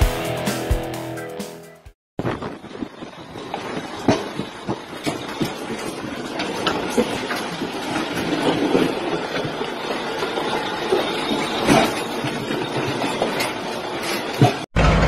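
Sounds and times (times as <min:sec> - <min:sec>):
truck tyre crunching over gravel: 0:02.2 - 0:15.0
knocks and clanks: 0:03.5 - 0:15.0.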